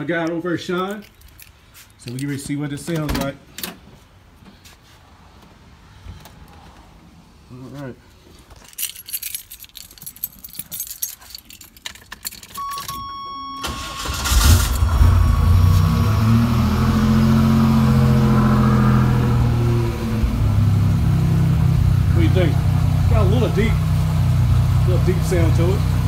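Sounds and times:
keys jangling: 0:00.8 - 0:02.4, 0:08.5 - 0:13.1
car engine starting and idling: 0:12.3 - 0:26.0
brief steady tone: 0:12.6 - 0:14.0.

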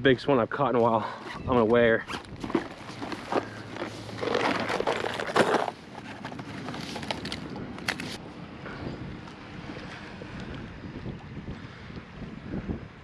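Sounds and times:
fabric backpack rustling: 0:01.0 - 0:08.2.

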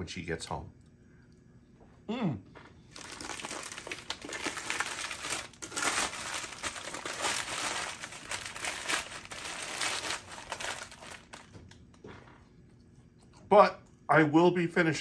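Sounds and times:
food wrapper crinkling: 0:02.8 - 0:12.0.

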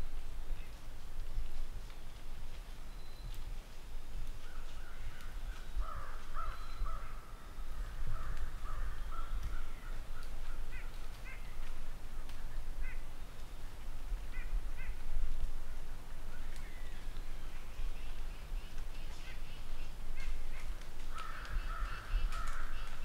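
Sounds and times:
crows cawing: 0:04.4 - 0:11.6, 0:12.8 - 0:13.1, 0:14.3 - 0:15.0, 0:19.1 - 0:23.0.

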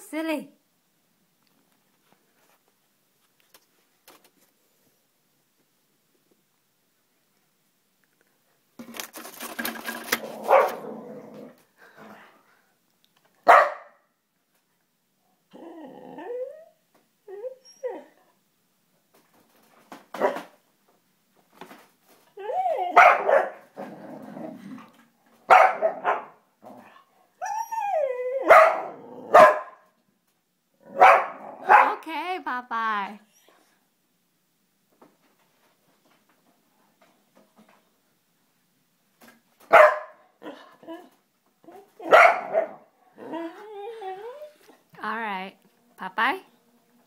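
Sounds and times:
paper rustling in a printer: 0:08.8 - 0:10.8
dog barking: 0:10.4 - 0:10.8, 0:13.4 - 0:14.0, 0:20.2 - 0:20.5, 0:23.0 - 0:23.7, 0:25.5 - 0:26.4, 0:28.5 - 0:29.8, 0:31.0 - 0:32.0, 0:39.7 - 0:40.6, 0:42.1 - 0:42.8.

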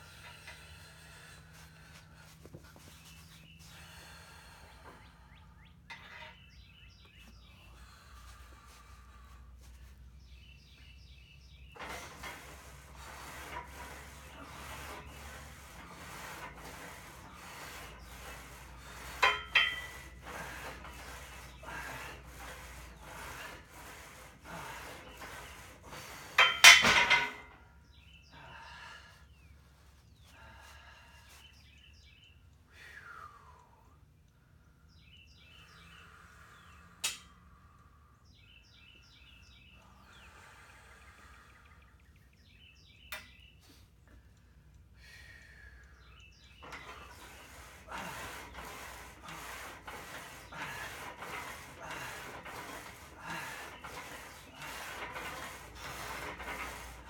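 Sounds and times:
birds chirping faintly: 0:00.0 - 0:57.0
barbell rasping strokes: 0:11.7 - 0:27.6, 0:46.4 - 0:57.0.

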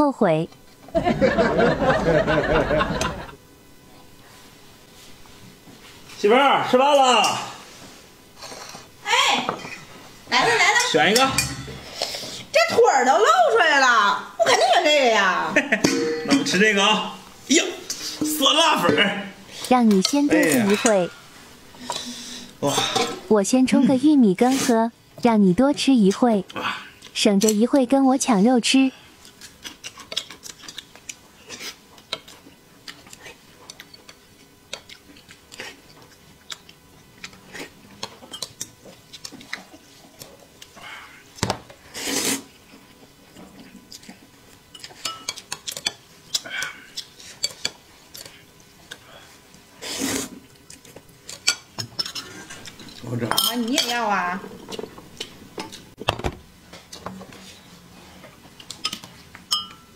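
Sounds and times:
tableware tapping: 0:15.8 - 0:16.6, 0:58.9 - 0:59.9
spoon clinking in a cup: 0:58.9 - 0:59.9.

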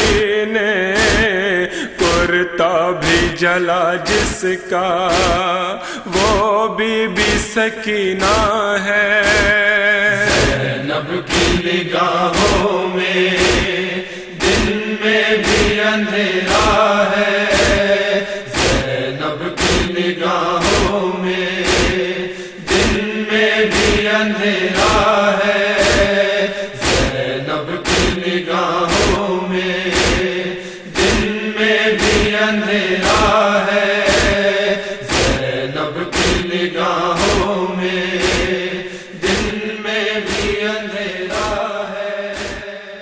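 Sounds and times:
rhythmic chest-beating strokes: 0:00.0 - 0:00.4, 0:01.0 - 0:02.4, 0:04.0 - 0:06.5, 0:07.2 - 0:07.6, 0:08.2 - 0:08.6, 0:09.2 - 0:43.0
wordless chorus chanting: 0:00.0 - 0:43.0
steady low drone: 0:10.2 - 0:41.6.

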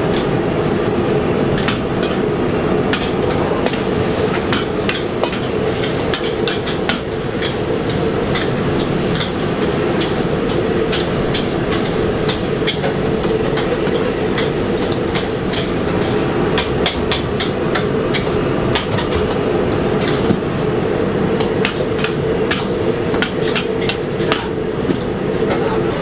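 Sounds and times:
steady hum: 0:00.0 - 0:26.0.

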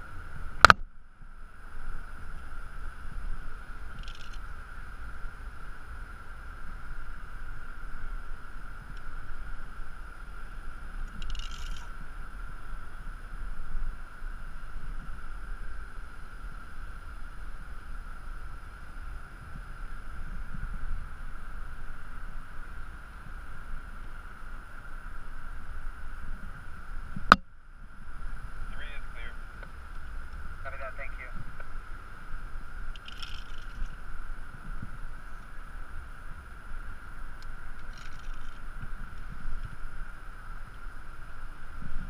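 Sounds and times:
wind buffeting microphone: 0:17.2 - 0:42.0.

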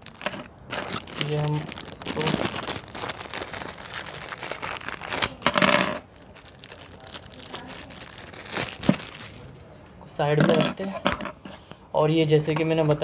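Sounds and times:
plastic crinkling and rustling: 0:00.0 - 0:09.8.

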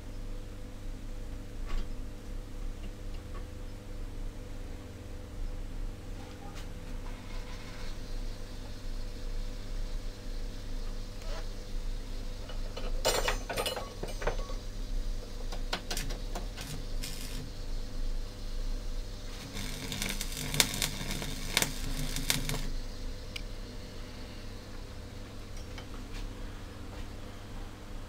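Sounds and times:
steady low hum: 0:00.0 - 0:28.0
arc welding crackling: 0:14.6 - 0:24.3.

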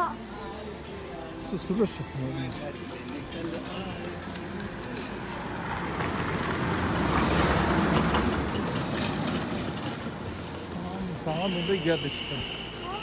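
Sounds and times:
vehicle passing by: 0:04.5 - 0:11.1.

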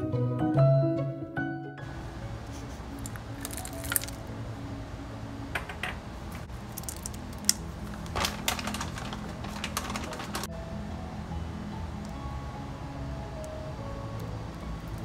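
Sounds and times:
berries and nuts clicking into bowl: 0:03.0 - 0:04.2, 0:06.7 - 0:10.5.

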